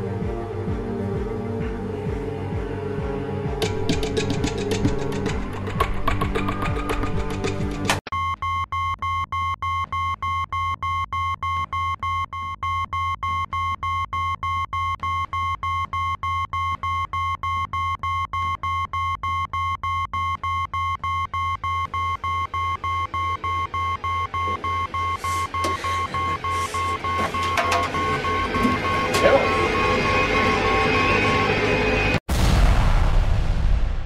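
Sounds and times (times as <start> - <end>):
held high synth tone: 23.5 - 32.2.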